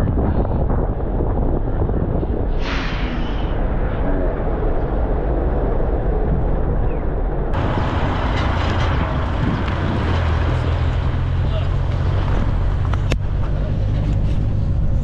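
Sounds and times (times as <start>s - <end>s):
van engine rumble and road noise: 0.0s - 15.0s
brief rush: 2.5s - 4.0s.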